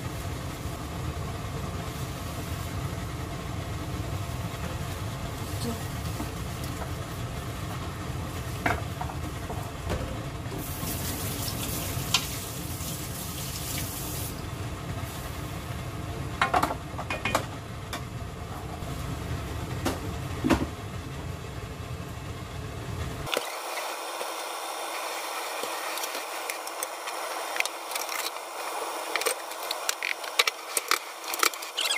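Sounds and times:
stew simmering: 0:23.2 - 0:31.9.

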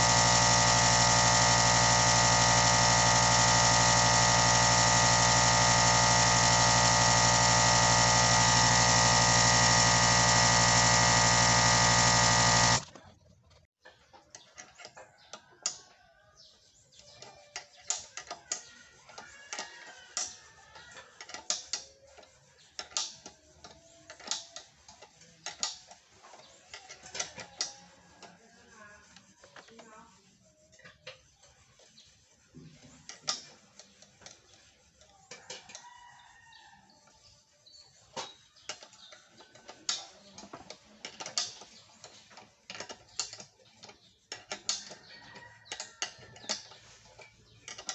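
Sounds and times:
electric air compressor running: 0:00.0 - 0:12.9.

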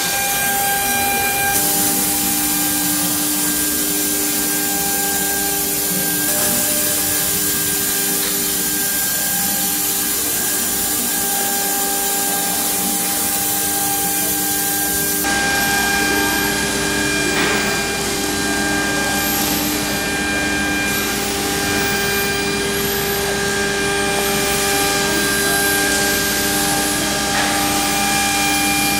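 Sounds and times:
rough cutting noise: 0:00.0 - 0:15.7
high-pitched whines: 0:00.0 - 0:28.9
router spindle whine: 0:00.0 - 0:28.9.

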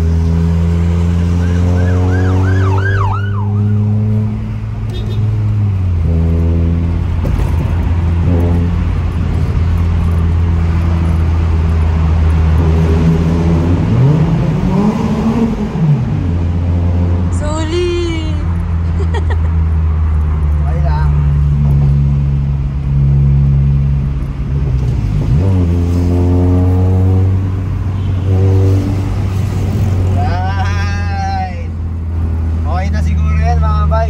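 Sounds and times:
car exhaust drone: 0:00.0 - 0:20.6
siren-like warble: 0:01.4 - 0:03.9.

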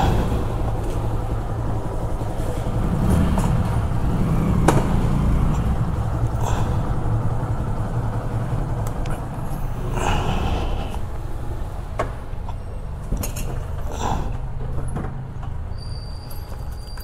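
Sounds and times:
motorcycle engine running at low revs: 0:00.0 - 0:10.0.

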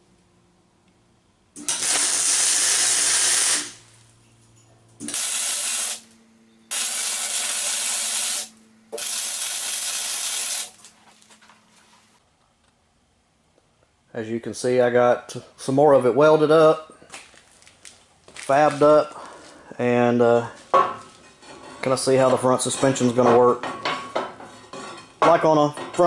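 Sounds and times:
welder hissing: 0:01.6 - 0:03.9, 0:05.0 - 0:11.0.

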